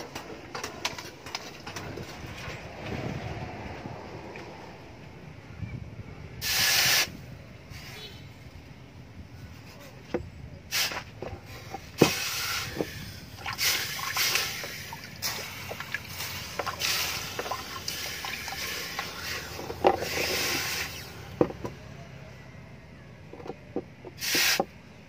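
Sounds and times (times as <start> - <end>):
water sloshing: 11.4 - 20.6
hot blade hissing in water: 13.6 - 21.2.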